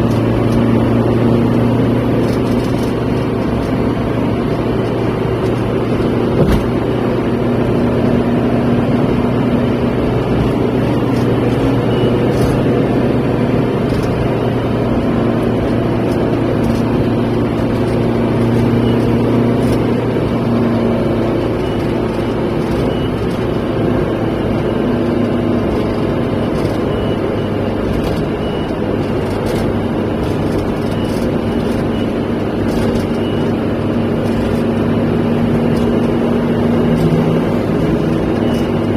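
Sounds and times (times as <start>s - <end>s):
car road and engine noise: 0.0s - 38.9s.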